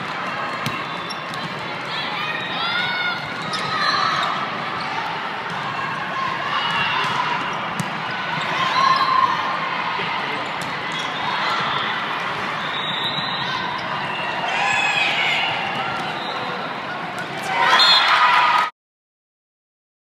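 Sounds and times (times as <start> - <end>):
shoes squeaking on court: 0.5 - 1.6, 3.2 - 4.9.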